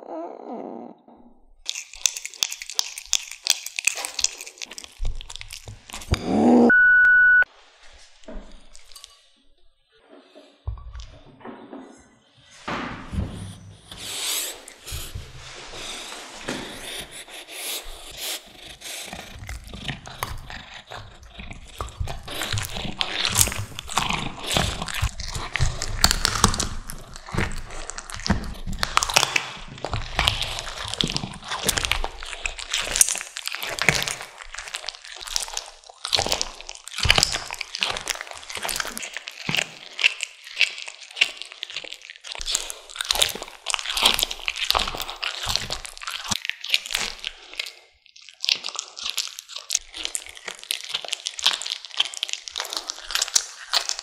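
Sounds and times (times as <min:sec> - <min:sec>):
cat chewing and tearing meat: 0:01.6 - 0:06.6, 0:13.2 - 0:54.0.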